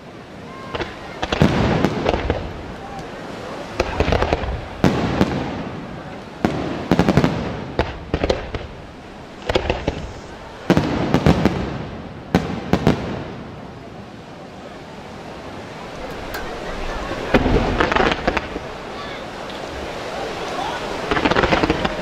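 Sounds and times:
firework shells bursting: 6.8s - 11.6s, 15.9s - 18.8s, 21.1s - 22.0s.

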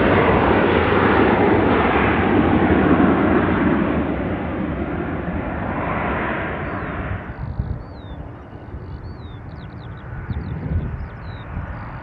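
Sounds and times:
jet aircraft noise: 0.0s - 12.0s
small birds chirping: 6.5s - 12.0s.

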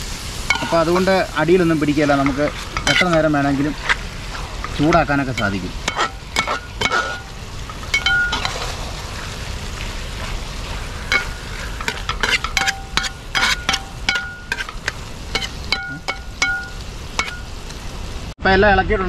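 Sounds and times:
food sizzling in a pot: 0.0s - 18.4s
utensil knocking and scraping pot: 0.5s - 8.8s, 11.0s - 17.7s.

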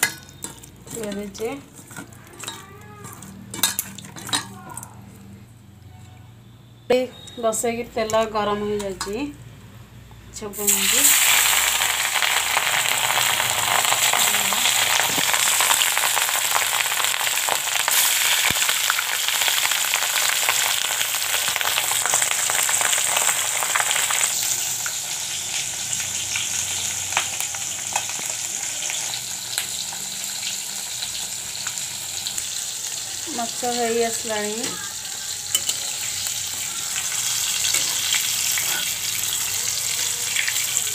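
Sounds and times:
fish frying in oil: 10.6s - 40.9s.

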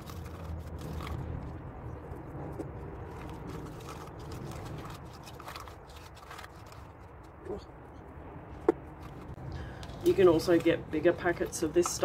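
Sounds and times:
gritty paint stirred in a cup: 0.0s - 7.4s
steady low rumble: 0.0s - 11.8s.

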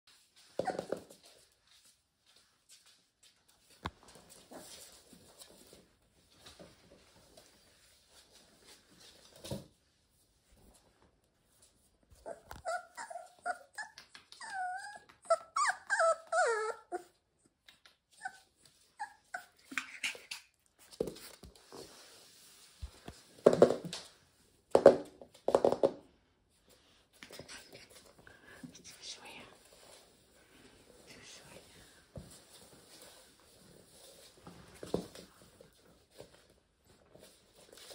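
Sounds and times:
puppies whining: 12.2s - 17.2s.

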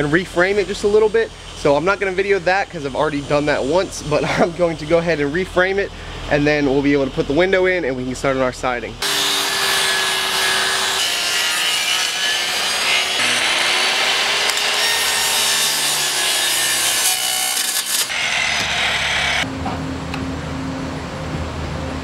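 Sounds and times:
circular saw cutting wood: 9.0s - 19.5s.

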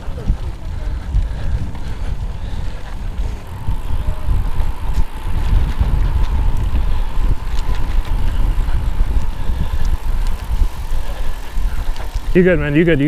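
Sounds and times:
tyre and road noise: 0.0s - 13.0s
wind rumble on microphone: 0.0s - 13.0s.

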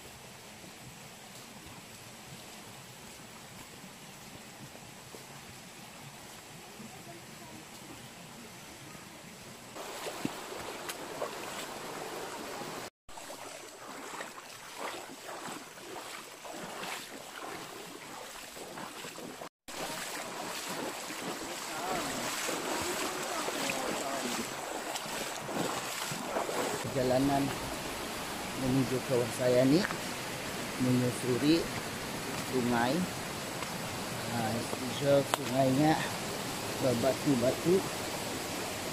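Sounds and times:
stream running over stones: 0.0s - 38.9s
feet splashing through water: 9.8s - 38.9s.

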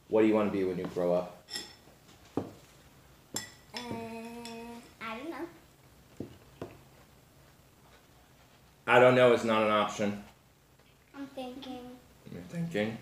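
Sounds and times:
child humming: 3.8s - 4.9s.

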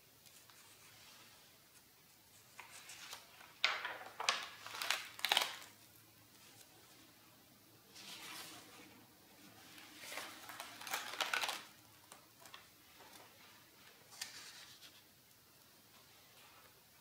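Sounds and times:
sketchbook pages turning: 2.3s - 5.8s, 9.6s - 15.1s.

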